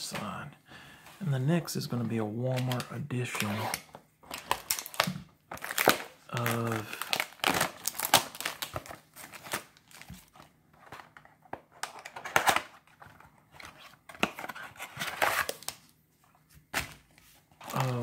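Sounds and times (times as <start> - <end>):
plastic wrapping crinkling: 4.3 - 10.4, 17.6 - 18.0.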